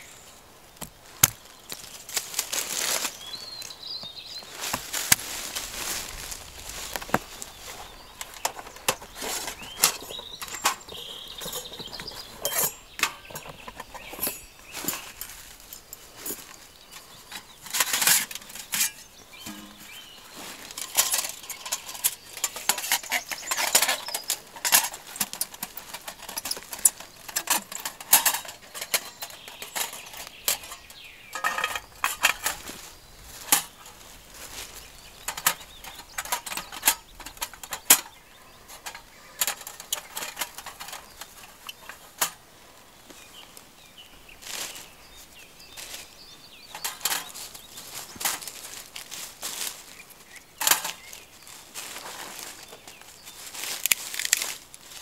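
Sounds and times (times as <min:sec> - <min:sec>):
steel stove panels clinking: 0:08.2 - 0:15.0, 0:17.3 - 0:20.0, 0:20.7 - 0:32.7, 0:35.2 - 0:42.4, 0:46.7 - 0:47.6.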